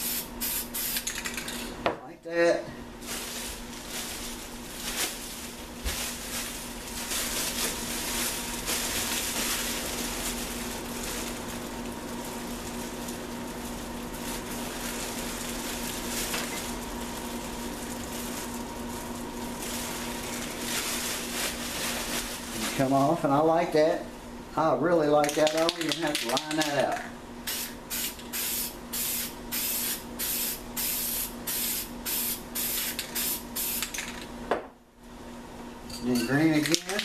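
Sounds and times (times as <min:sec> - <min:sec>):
plastic sheet crinkling: 0:03.0 - 0:23.3.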